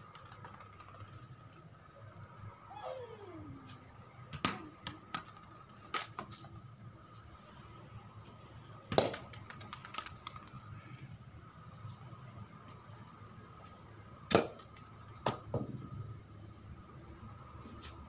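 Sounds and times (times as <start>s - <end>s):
cricket ball bouncing on turf: 4.3s - 5.6s, 8.9s - 10.4s, 14.2s - 15.9s
bat striking ball: 14.3s - 14.6s.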